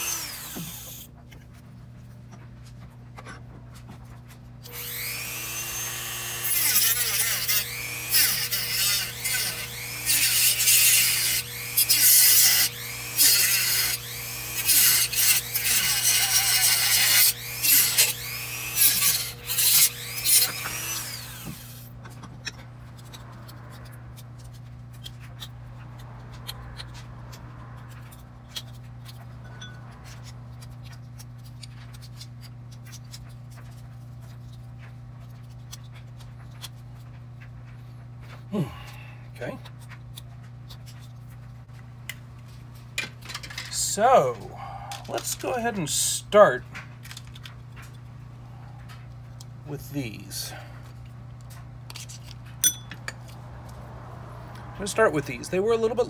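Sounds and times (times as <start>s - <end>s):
rotary tool cutting plastic: 0.0s - 1.1s, 4.6s - 27.1s.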